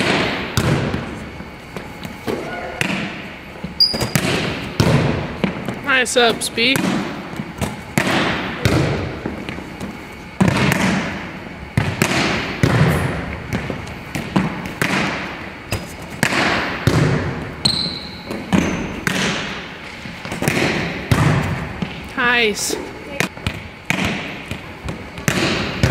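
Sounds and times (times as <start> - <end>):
volleyball being struck: 0.0 - 1.1, 2.3 - 5.6, 6.6 - 9.4, 10.4 - 22.0, 23.4 - 25.9
high squeak: 3.8 - 4.2.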